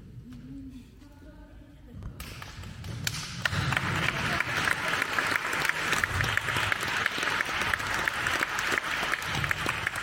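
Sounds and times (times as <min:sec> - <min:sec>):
audience applause: 0:03.0 - 0:10.0.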